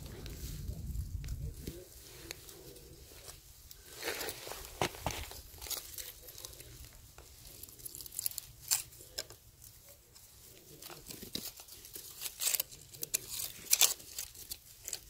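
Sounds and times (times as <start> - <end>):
crunching and crinkling: 0.0 - 15.0
sharp crackles: 0.0 - 15.0.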